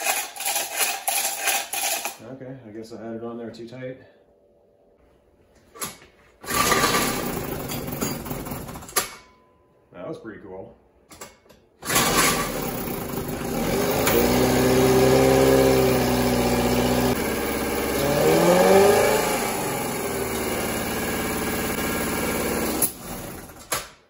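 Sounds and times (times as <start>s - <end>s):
outboard engine running: 12.7s - 23.4s.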